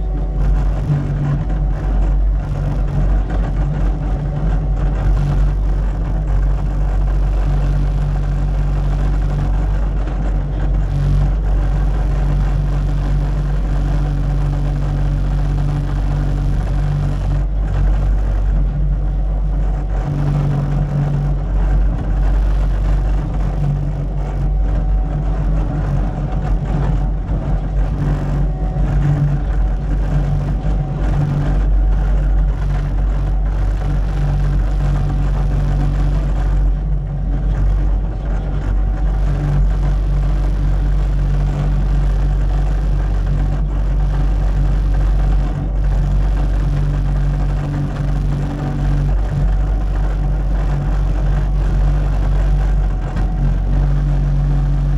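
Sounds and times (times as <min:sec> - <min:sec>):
diesel engine rumbling: 0:00.0 - 0:54.9.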